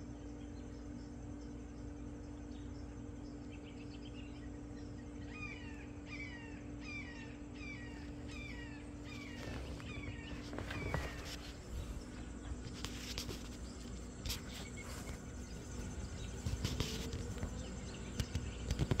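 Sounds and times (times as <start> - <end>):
insects: 0.0 - 19.0
bird falling call: 5.3 - 12.1
sharp clicks and knocks: 16.4 - 19.0.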